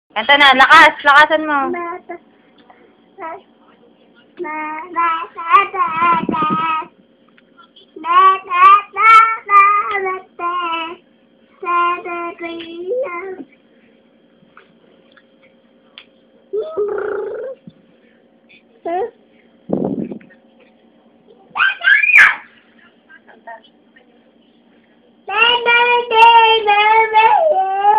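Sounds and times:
child singing: 4.4s - 6.9s, 8.0s - 11.0s, 25.3s - 27.9s.

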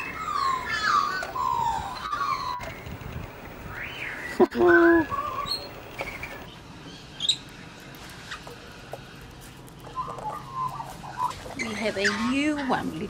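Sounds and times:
lorikeets chattering: 0.0s - 6.5s
lorikeets chirping and squeaking: 0.0s - 6.6s, 10.0s - 13.0s.

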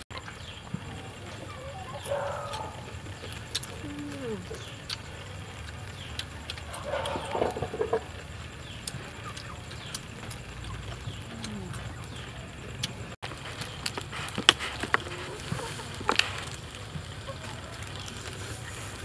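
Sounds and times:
animal calls: 1.0s - 5.0s, 6.1s - 8.2s
people eating crunches: 1.9s - 19.0s.

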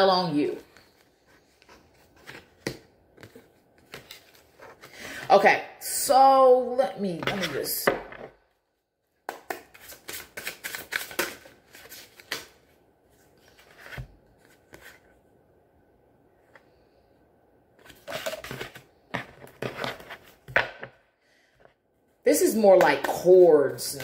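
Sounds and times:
cards being shuffled: 0.6s - 4.9s, 9.3s - 12.7s.

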